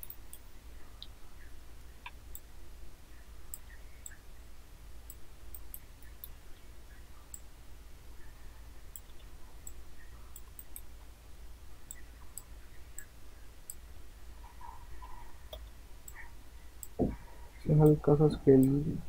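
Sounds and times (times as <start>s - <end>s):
low background hum: 0.0s - 19.0s
computer mouse clicks: 8.9s - 10.9s.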